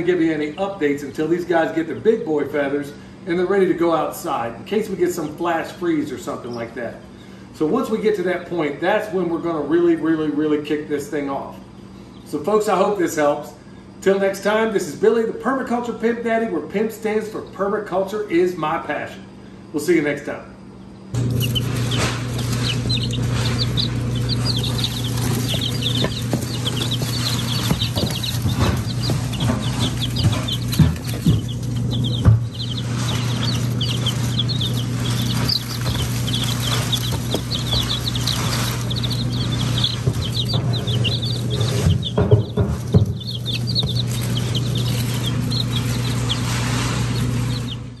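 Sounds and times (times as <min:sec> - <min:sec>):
chicks peeping: 0:00.0 - 0:14.2, 0:20.7 - 0:48.0
steady low hum: 0:18.8 - 0:48.0
knocks: 0:21.2 - 0:45.7.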